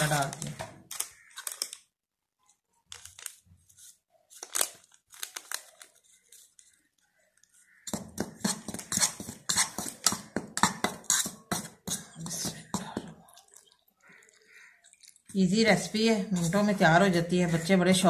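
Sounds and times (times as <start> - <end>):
spoon scraping ceramic bowl: 7.9 - 13.0.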